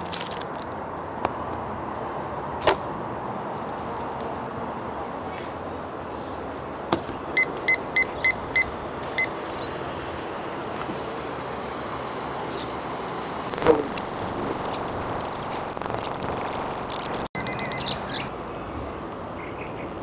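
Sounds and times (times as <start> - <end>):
steady rushing noise: 7.2 - 17.3
kitchen timer beeping: 7.4 - 9.3, 17.4 - 17.9.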